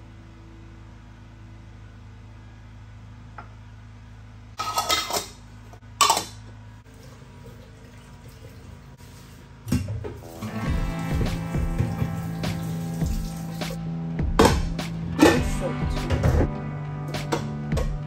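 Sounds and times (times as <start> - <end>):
steady low hum: 0.0 - 7.5
dishes and pans clattering: 4.6 - 5.4, 6.0 - 6.4.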